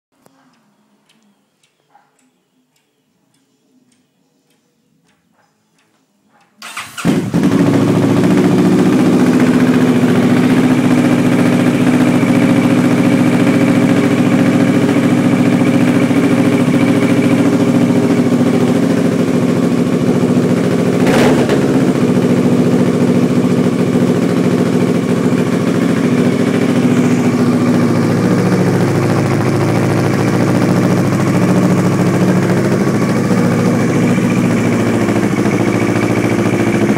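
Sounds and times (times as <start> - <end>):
motorcycle engine starting and idling: 6.6 - 36.9.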